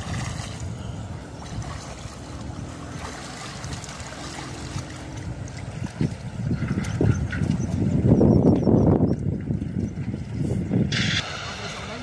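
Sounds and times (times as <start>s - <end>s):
water splashing from swimming: 0.0s - 8.0s.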